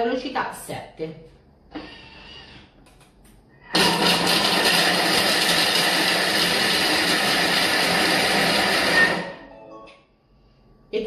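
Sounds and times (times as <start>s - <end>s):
food processor motor whirring: 3.8s - 9.3s.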